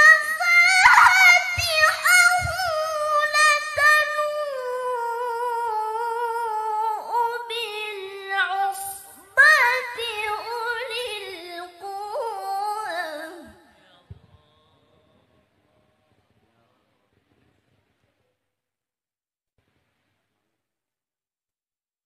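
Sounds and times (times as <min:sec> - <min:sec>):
woman reciting melodically: 0:00.0 - 0:13.7.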